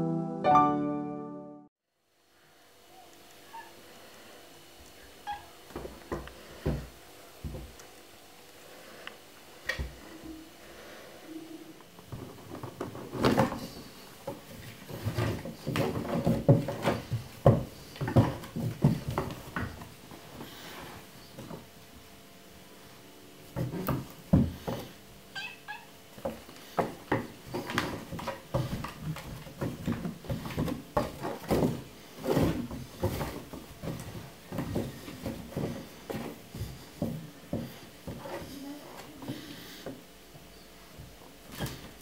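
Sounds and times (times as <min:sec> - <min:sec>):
thumps and scrabbling paws on wood: 0:12.1 - 0:19.9, 0:26.2 - 0:40.0
kitten meowing: 0:25.4 - 0:25.9.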